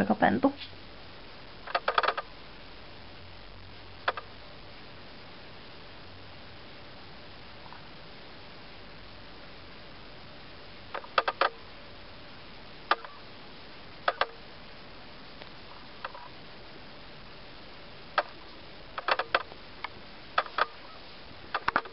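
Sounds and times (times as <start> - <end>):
faint hiss: 0.0 - 21.9
fingernails clicking on plastic toy: 1.7 - 2.2, 11.0 - 11.6, 19.0 - 19.5, 21.6 - 21.9.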